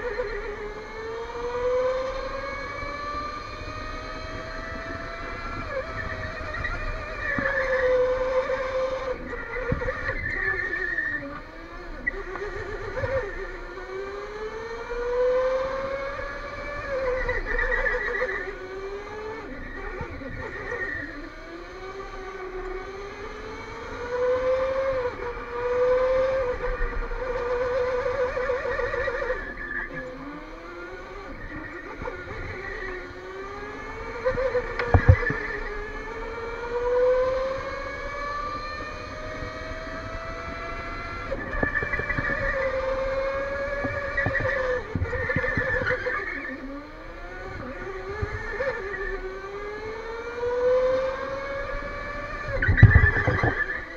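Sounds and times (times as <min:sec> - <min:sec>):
electric go-kart motor whining: 0:00.0 - 0:53.9.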